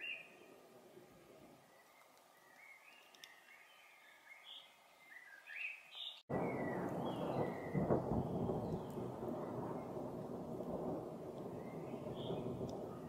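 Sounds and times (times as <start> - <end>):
chaffinch singing: 1.6 - 10.0
thunder rumbling: 6.3 - 13.0.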